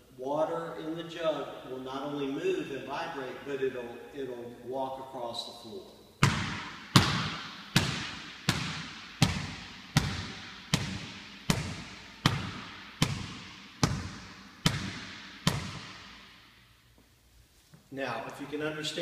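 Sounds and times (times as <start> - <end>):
basketball bouncing on wooden floor: 6.2 - 16.2.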